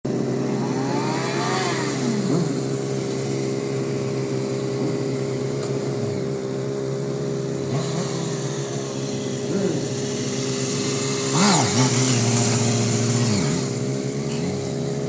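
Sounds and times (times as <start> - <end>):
motorcycle engines revving: 0.0 - 15.0
steady drone: 0.2 - 15.0.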